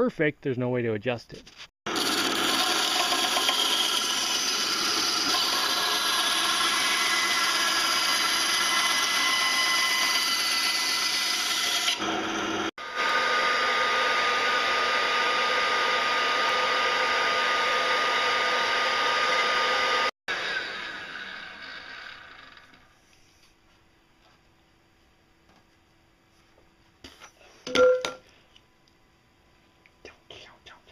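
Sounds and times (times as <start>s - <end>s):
band saw cutting plastic pipe: 1.9s - 22.8s
motor whining and winding down: 1.9s - 22.9s.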